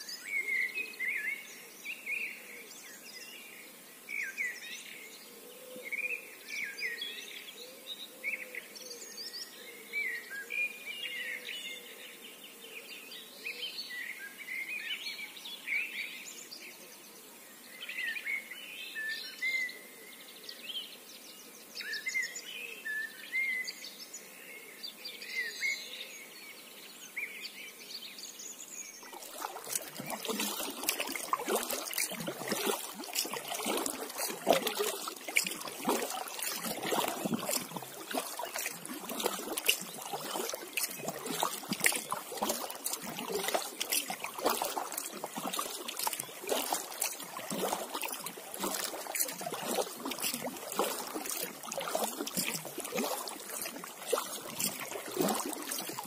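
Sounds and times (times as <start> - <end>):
songbirds chirping: 0.0 - 56.0
paddle splashing in water: 28.9 - 56.0.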